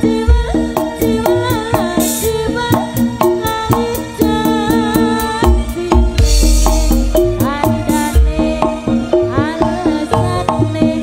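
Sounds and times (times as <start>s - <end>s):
hand drums with bending pitch: 0.0s - 11.0s
repeating pitched notes: 2.8s - 9.4s
deep bass thuds: 5.5s - 8.9s.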